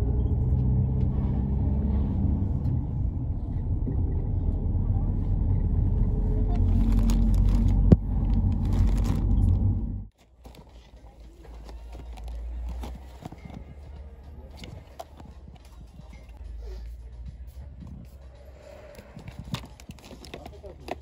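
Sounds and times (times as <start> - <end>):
road vehicle rumble: 0.0 - 21.0.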